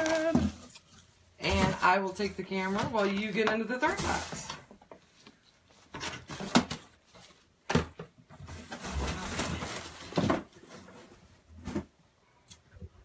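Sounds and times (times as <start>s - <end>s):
items put into cardboard box: 5.8s - 12.0s.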